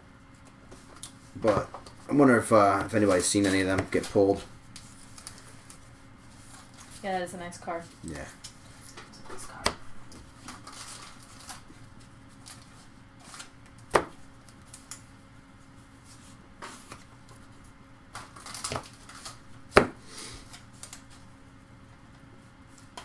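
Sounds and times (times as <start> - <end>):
cards knocking on table: 19.7 - 20.0.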